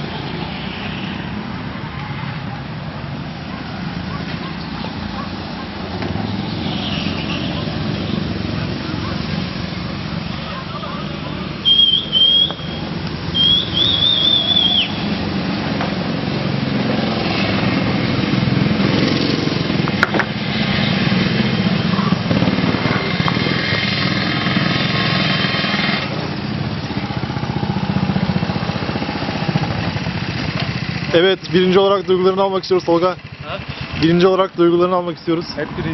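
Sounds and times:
go-kart engines buzzing: 0:00.0 - 0:35.9
kart engine whining: 0:03.4 - 0:35.9
high warbling squeal: 0:11.6 - 0:15.2.

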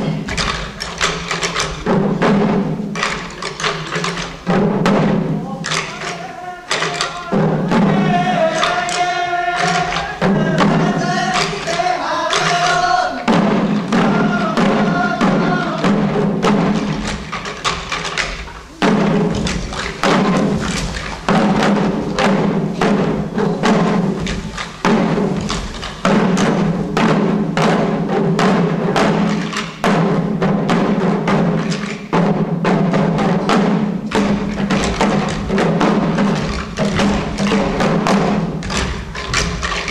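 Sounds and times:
small drums beating rapidly: 0:00.0 - 0:39.9
chanted singing: 0:05.4 - 0:13.3.

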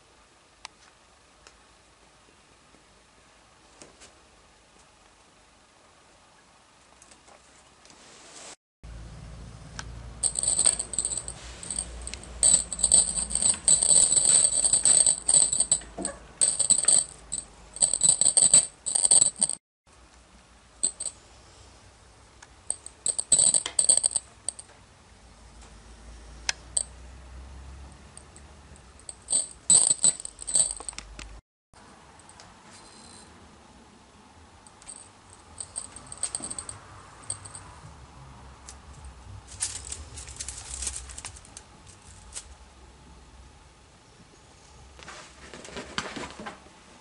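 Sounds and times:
high metallic jingling: 0:10.2 - 0:19.6, 0:20.8 - 0:21.1, 0:22.7 - 0:24.6, 0:28.2 - 0:31.0, 0:34.8 - 0:37.7, 0:39.5 - 0:41.4.

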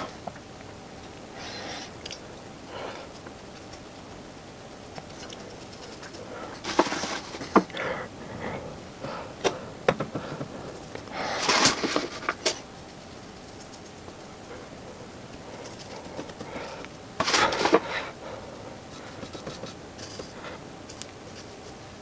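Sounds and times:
paintbrush scraping: 0:18.9 - 0:20.4.

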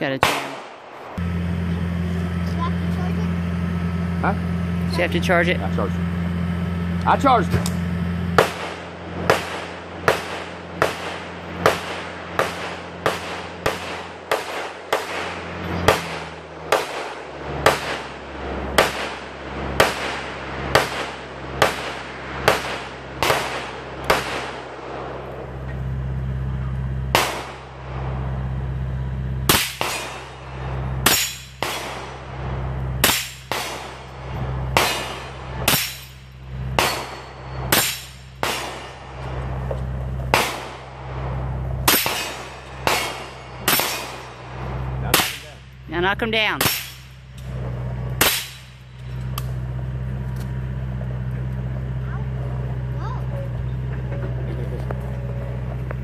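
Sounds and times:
rifle shots cracking: 0:00.1 - 0:01.2, 0:08.4 - 0:25.3, 0:27.1 - 0:27.9, 0:29.5 - 0:39.6, 0:40.3 - 0:41.2, 0:41.8 - 0:45.6, 0:48.2 - 0:49.1.

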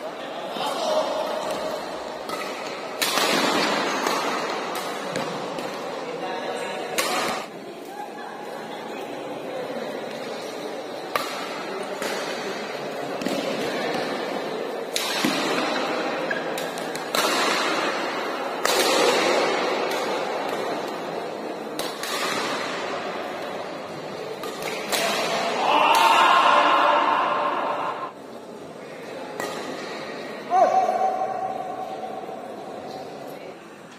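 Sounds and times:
racket hitting shuttlecock: 0:01.4 - 0:06.0, 0:06.8 - 0:07.5, 0:14.9 - 0:23.4, 0:24.3 - 0:26.2
players shouting: 0:25.3 - 0:28.2.

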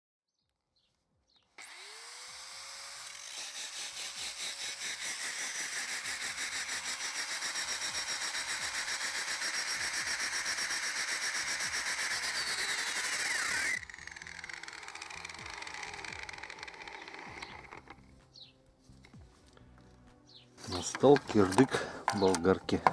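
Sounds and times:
angle grinder whining: 0:01.6 - 0:18.2.

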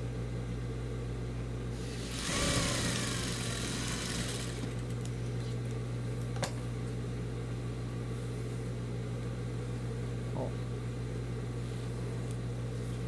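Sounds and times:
sewing machine motor humming: 0:01.8 - 0:05.1.

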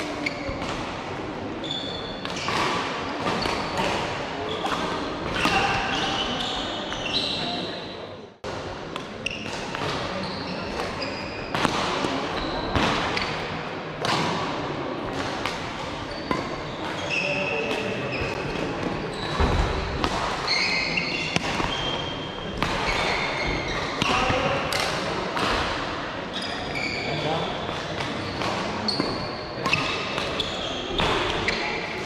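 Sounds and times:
shoe squeaks on court: 0:00.2 - 0:00.6, 0:01.6 - 0:02.7, 0:05.4 - 0:08.0, 0:10.1 - 0:11.5, 0:16.1 - 0:19.6, 0:20.5 - 0:24.5, 0:26.3 - 0:31.9.

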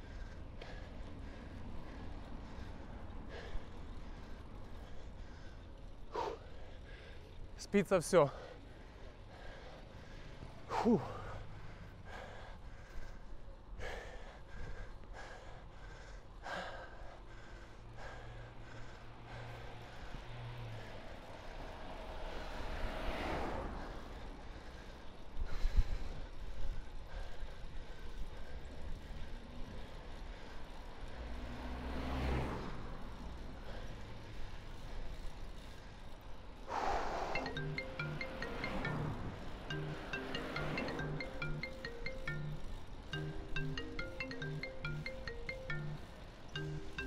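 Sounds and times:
person breathing hard: 0:00.0 - 0:07.5, 0:08.4 - 0:21.4, 0:36.7 - 0:37.4
street traffic: 0:00.0 - 0:47.0
vehicle passing: 0:17.9 - 0:25.3, 0:29.0 - 0:47.0.

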